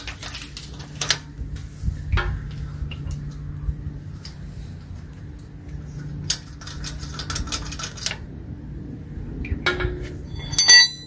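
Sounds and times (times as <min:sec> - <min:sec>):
metallic clinks of lug nuts: 0:09.5 - 0:11.0.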